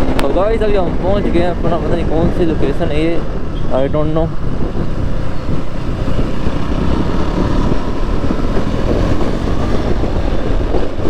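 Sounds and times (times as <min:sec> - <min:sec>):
wind noise on microphone: 0:00.0 - 0:11.0
motorcycle engine running: 0:04.3 - 0:11.0.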